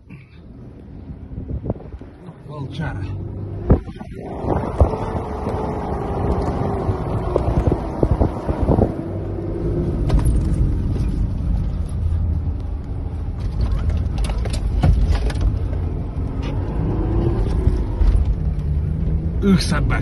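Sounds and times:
engine and tyre rumble: 0:00.0 - 0:20.0
car knocks and rattles: 0:03.6 - 0:09.0, 0:09.9 - 0:12.1, 0:13.3 - 0:16.5.

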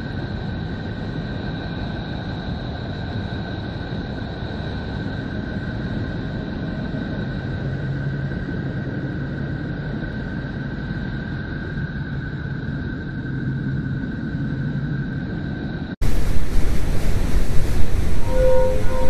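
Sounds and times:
low noise drone: 0:00.0 - 0:19.0
faint held tones: 0:16.2 - 0:19.0.

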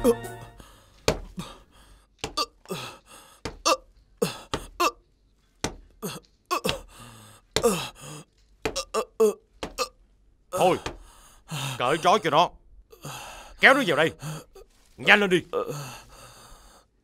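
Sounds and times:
man grunting in pain: 0:06.0 - 0:06.9, 0:07.6 - 0:08.0, 0:15.6 - 0:15.9.

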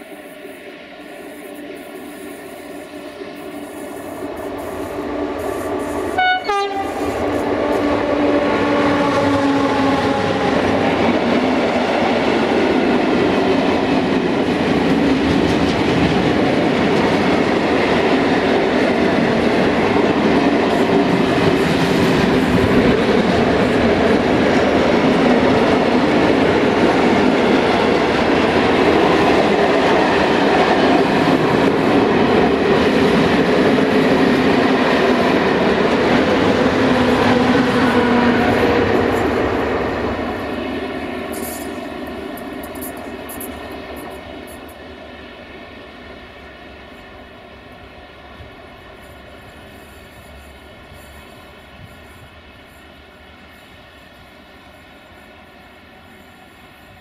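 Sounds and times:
train wheels rumbling on rails: 0:00.0 - 0:57.0.

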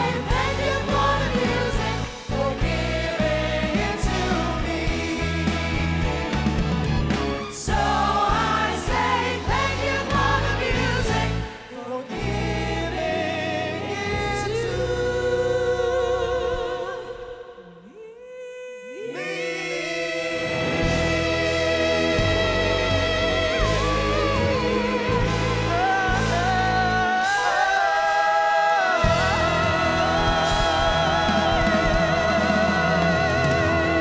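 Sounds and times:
live pop band: 0:00.0 - 0:17.6, 0:19.2 - 0:34.0
singers in close harmony: 0:00.0 - 0:34.0.

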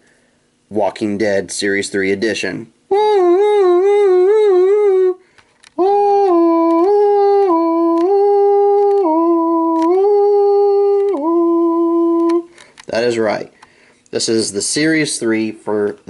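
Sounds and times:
person humming slow tune: 0:02.9 - 0:12.6.

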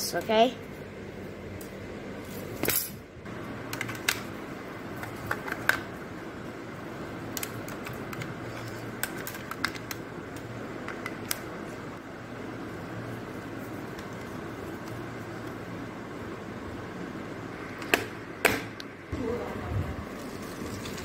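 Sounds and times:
steady low hum: 0:00.0 - 0:21.0
pencils clicking in metal box: 0:07.4 - 0:10.0.

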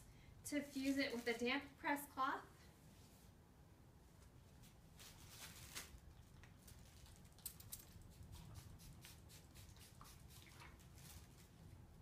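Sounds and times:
fabric and paper rustling: 0:00.7 - 0:01.6, 0:04.4 - 0:07.4.

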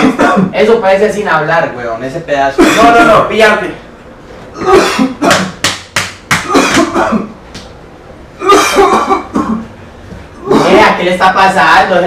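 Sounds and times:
man coughing and gagging: 0:00.0 - 0:00.6, 0:02.6 - 0:03.3, 0:04.5 - 0:05.6, 0:06.4 - 0:07.4, 0:08.4 - 0:09.7
slaps on the back: 0:05.3 - 0:07.8.

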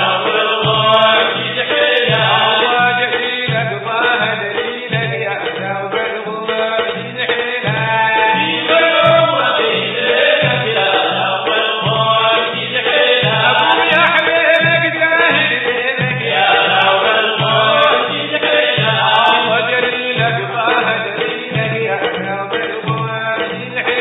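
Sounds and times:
men chanting in chorus: 0:00.0 - 0:05.1, 0:06.4 - 0:22.3
low drumbeat: 0:00.0 - 0:24.0.

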